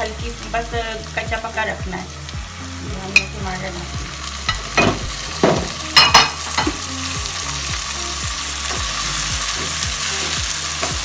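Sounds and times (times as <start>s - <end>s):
vegetables sizzling in hot oil: 0.0s - 11.0s
spatula knocking and scraping pan: 4.5s - 6.8s.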